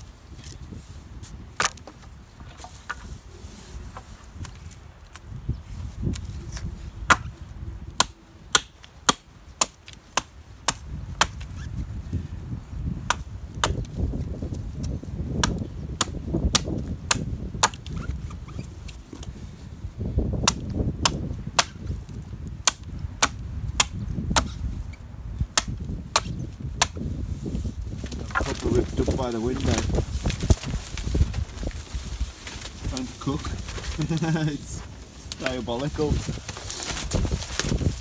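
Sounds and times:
low gusts of wind: 0.0s - 38.0s.

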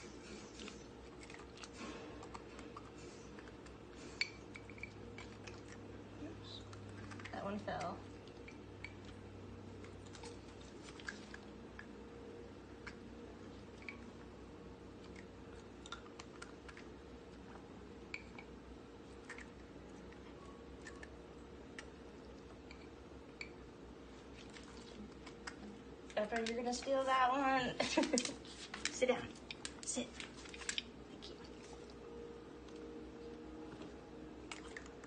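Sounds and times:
dog chewing food: 0.0s - 26.7s, 28.4s - 35.0s
steady low hum: 0.0s - 35.0s
teeth clicks: 15.0s - 16.9s.

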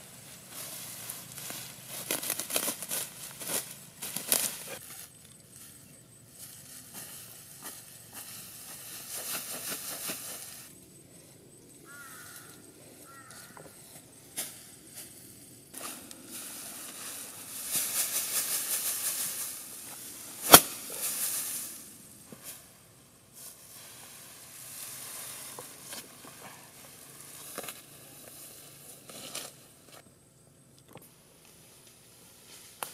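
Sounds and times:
grass rustling and swishing: 0.0s - 10.8s, 11.9s - 30.0s, 31.5s - 32.9s
sharp crack: 20.4s - 21.8s.

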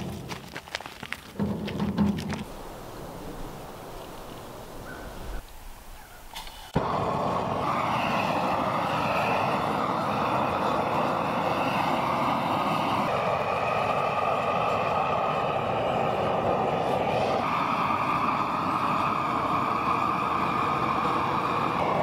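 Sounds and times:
propane torch roaring: 6.4s - 22.0s.

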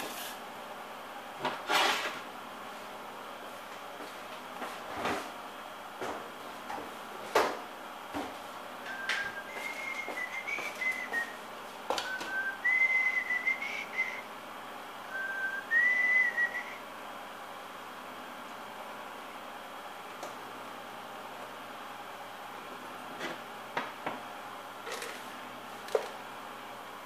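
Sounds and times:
person whistling a tune: 8.9s - 11.4s, 12.0s - 14.2s, 15.1s - 16.8s.

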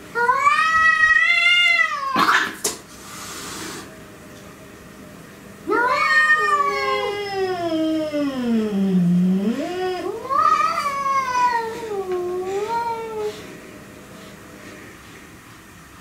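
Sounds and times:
cats yowling: 0.2s - 2.6s, 5.7s - 13.4s.

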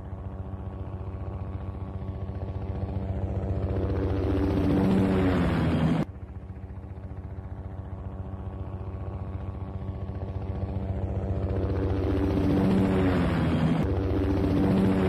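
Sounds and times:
helicopter rotor blades beating: 0.0s - 15.0s.

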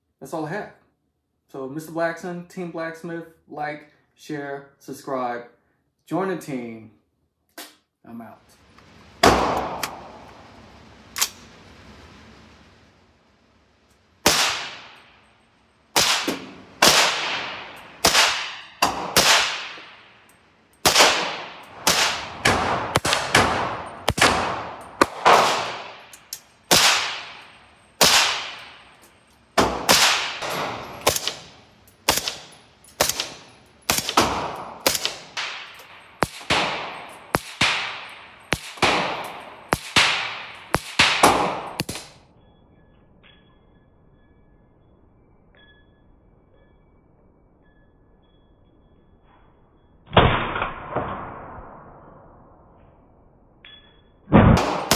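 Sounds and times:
gunshot echo: 9.2s - 10.2s, 14.2s - 15.2s, 15.9s - 20.2s, 20.8s - 26.1s, 26.7s - 28.8s, 29.6s - 42.2s, 50.1s - 52.1s, 54.3s - 54.9s
suppressed rifle shots: 14.2s - 15.0s, 15.9s - 20.0s, 20.8s - 26.1s, 29.6s - 42.2s.

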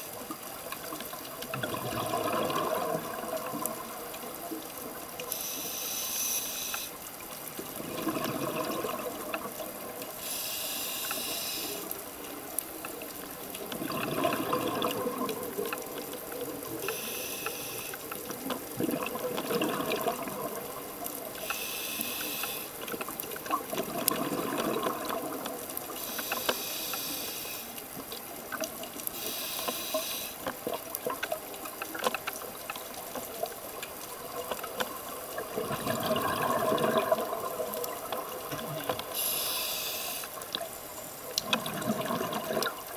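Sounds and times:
exhaled bubbles rushing: 1.4s - 4.3s, 7.6s - 9.9s, 13.6s - 16.8s, 18.6s - 21.1s, 23.4s - 25.9s, 35.1s - 39.1s, 41.4s - 42.9s
hissing inhale through regulator: 5.3s - 7.2s, 10.1s - 12.1s, 16.8s - 18.2s, 21.4s - 22.8s, 25.9s - 27.8s, 29.1s - 30.6s, 38.9s - 40.4s.

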